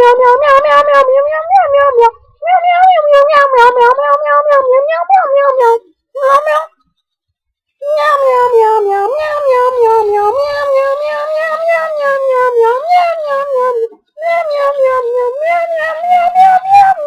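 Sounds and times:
wavering animal howl: 7.8 - 17.0.

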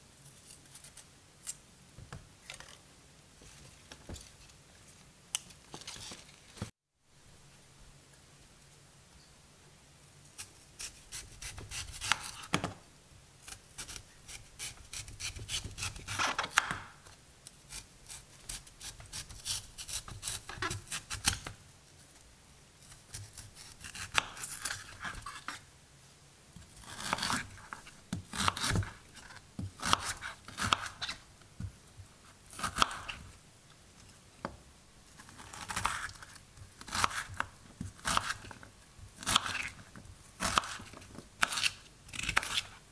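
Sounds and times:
knife cutting on wooden board: 38.0 - 38.3.

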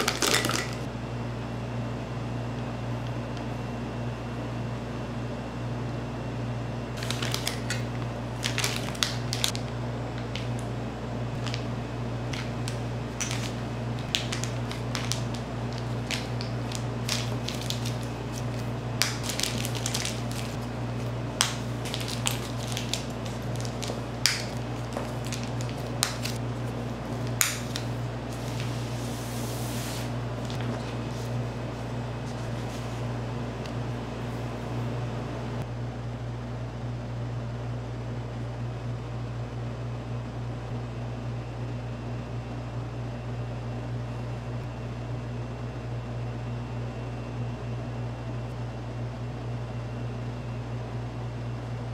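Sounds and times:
steady low hum: 0.0 - 51.9
handling clicks and crackles: 12.3 - 26.4.

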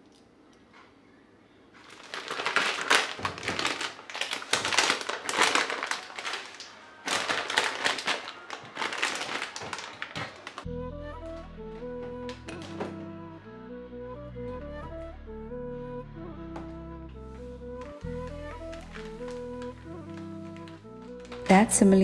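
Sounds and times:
plastic packets crinkling: 1.8 - 10.7, 18.0 - 22.0.

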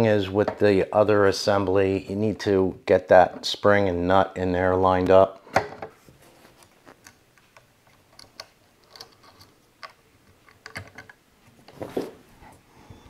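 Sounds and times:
small parts clicking and tapping: 7.0 - 11.2.

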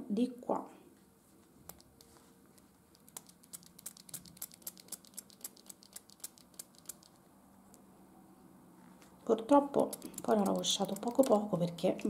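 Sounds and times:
touchscreen typing clicks: 3.0 - 7.2, 9.8 - 12.0.

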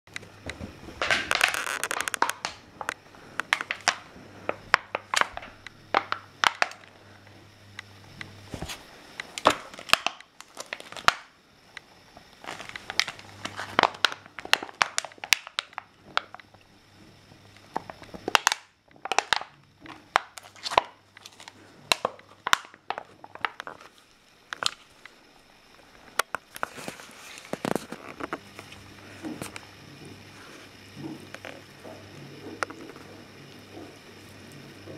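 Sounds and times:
dog chewing plastic bottle: 1.0 - 6.9.

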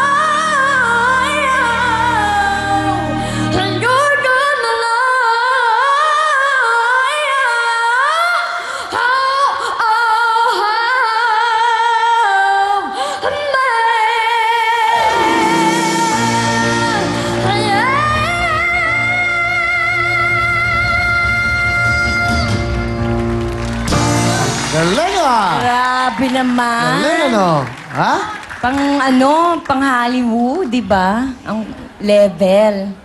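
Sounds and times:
backing music with bass: 15.0 - 25.8.

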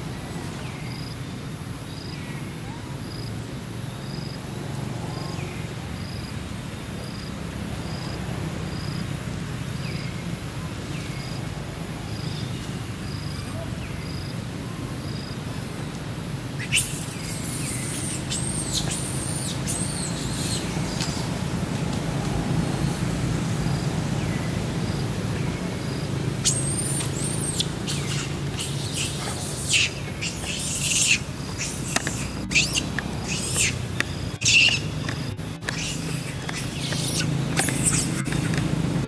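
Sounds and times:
low background hum: 10.0 - 39.0
steady high whine: 16.4 - 39.0
squealing animal calls: 16.6 - 21.3, 26.4 - 34.9, 35.6 - 38.7.

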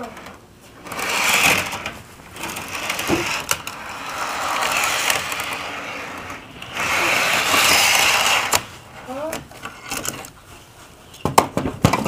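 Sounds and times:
toy train motor whir: 0.8 - 8.7
wheels and gears rattling: 0.8 - 8.7.

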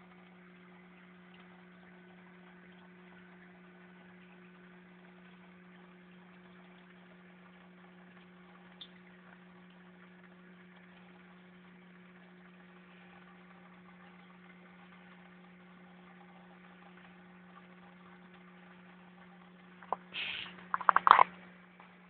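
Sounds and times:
faint tick: 1.3 - 1.5.

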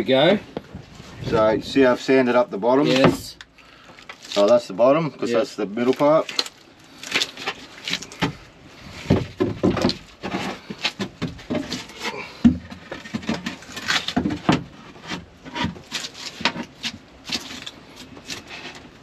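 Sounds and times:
board knocking and scraping: 7.4 - 19.0.

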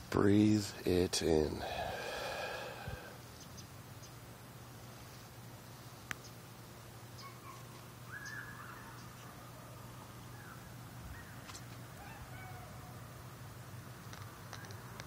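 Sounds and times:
low steady hum: 0.0 - 14.0
faint bird calls: 7.2 - 13.1.

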